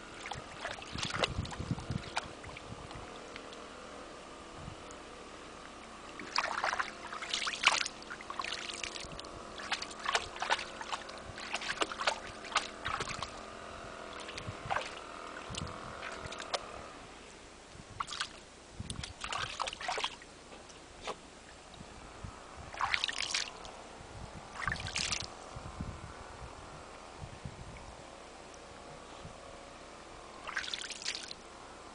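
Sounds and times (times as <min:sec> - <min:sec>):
water splashing and sloshing: 0:00.0 - 0:03.9, 0:05.6 - 0:16.8, 0:17.9 - 0:21.9, 0:22.7 - 0:23.8, 0:24.5 - 0:25.3, 0:30.4 - 0:31.4.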